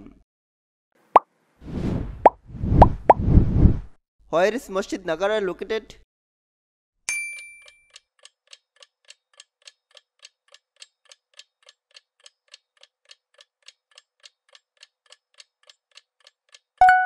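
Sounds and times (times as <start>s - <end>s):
clock ticking: 7.9s - 16.8s.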